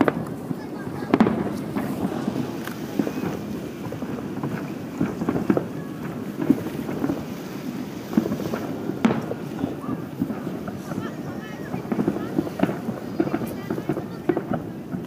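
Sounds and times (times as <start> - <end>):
distant fireworks booms: 0.0 - 15.0
wind buffeting microphone: 0.0 - 15.0.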